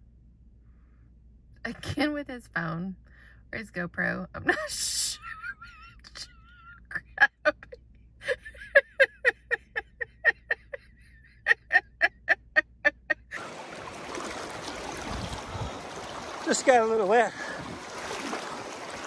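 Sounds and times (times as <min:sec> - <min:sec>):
woman laughing: 0:04.4 - 0:13.4
stream water rushing: 0:13.4 - 0:19.0.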